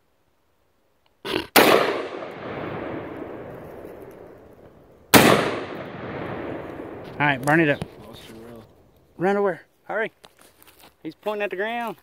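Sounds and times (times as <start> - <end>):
gunshots with rolling echo: 1.6 - 8.2.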